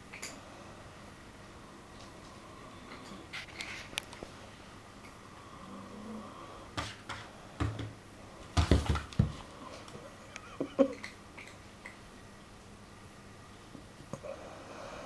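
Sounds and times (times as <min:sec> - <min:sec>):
kitten paws thumping and scrabbling: 0:08.6 - 0:09.5.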